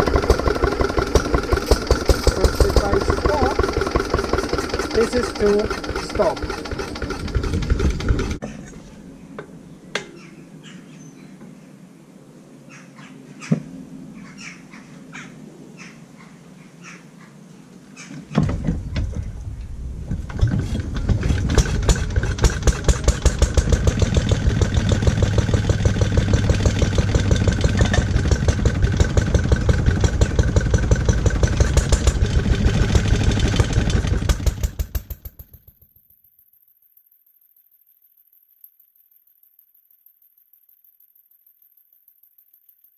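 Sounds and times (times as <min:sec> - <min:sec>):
stationary engine running: 0:00.0 - 0:08.4, 0:20.2 - 0:35.8.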